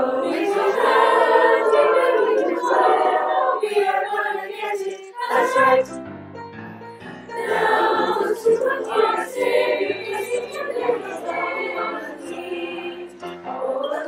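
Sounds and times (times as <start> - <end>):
mixed choir singing: 0.0 - 6.0, 7.3 - 14.0
piano accompaniment: 5.2 - 14.0.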